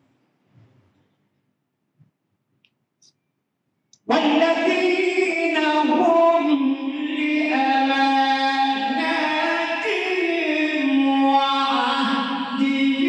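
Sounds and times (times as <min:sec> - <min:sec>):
man chanting melodically: 0:04.0 - 0:13.0.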